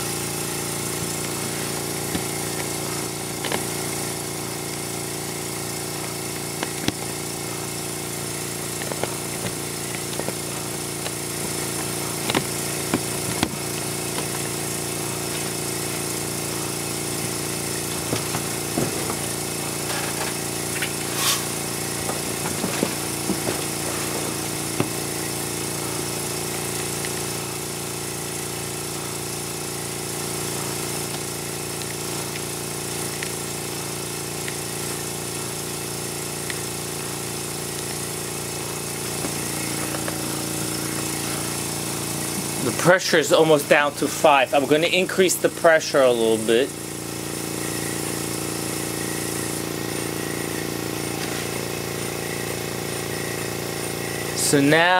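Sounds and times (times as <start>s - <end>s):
air compressor humming and hissing: 0.0s - 54.9s
sharp clicks and knocks: 3.4s - 3.8s, 8.8s - 14.4s.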